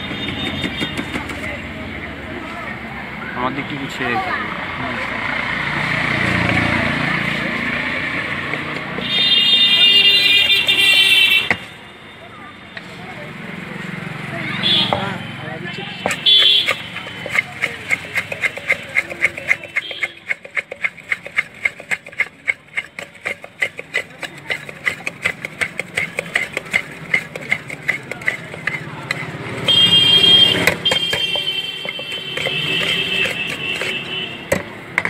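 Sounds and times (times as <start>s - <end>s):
spoon clattering against metal tin: 16.0s - 35.0s.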